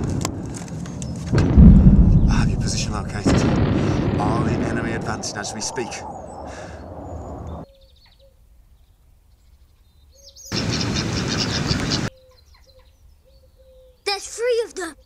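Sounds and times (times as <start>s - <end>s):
birds chirping quietly: 0.7s - 1.3s, 3.6s - 15.0s
loud battlefield noise: 1.3s - 7.6s
loud rushing burst: 1.3s - 7.6s.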